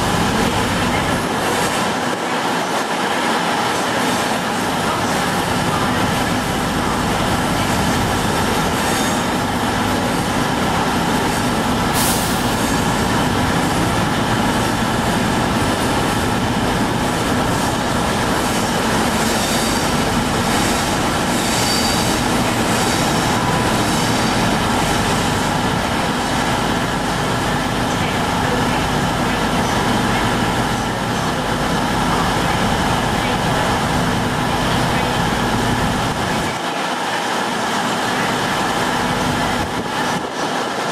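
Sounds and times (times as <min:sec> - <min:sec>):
train wheels rumbling on track: 0:00.0 - 0:40.9
sharp high-pitched noise: 0:17.1 - 0:25.6
thin wheel squeal: 0:19.2 - 0:19.9, 0:20.6 - 0:23.2.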